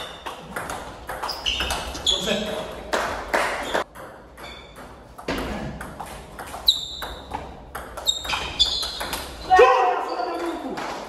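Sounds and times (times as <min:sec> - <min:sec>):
table tennis ball pinging: 0:00.0 - 0:02.0, 0:03.5 - 0:09.5.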